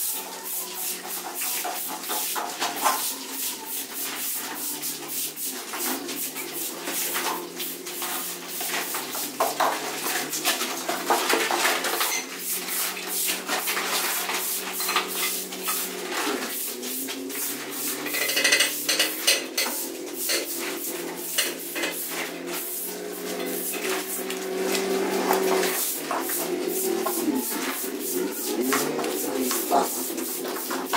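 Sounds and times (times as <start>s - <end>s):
hand tools scraping on cement: 8.0s - 30.9s.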